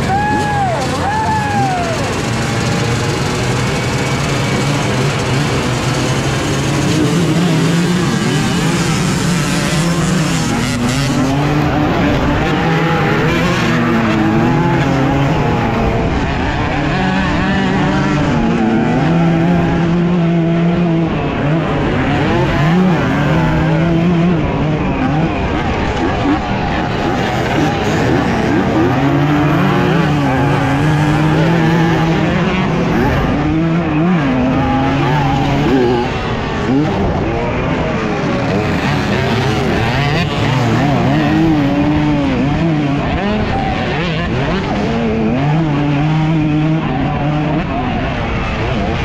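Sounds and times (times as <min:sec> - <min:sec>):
dirt bike accelerating: 0:00.0 - 0:49.0
dirt bike engines revving: 0:00.0 - 0:49.0.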